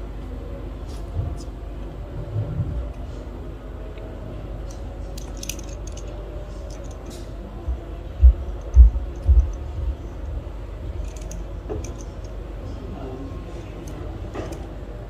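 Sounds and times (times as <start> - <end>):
steady low hum: 0.0 - 15.0
small metallic clicks: 4.7 - 7.3
dull low thumps: 7.6 - 10.5.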